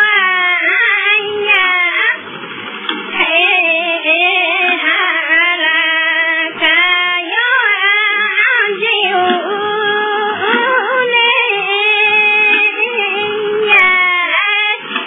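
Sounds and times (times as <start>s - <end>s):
high voice singing: 0.0s - 2.3s, 3.1s - 15.0s.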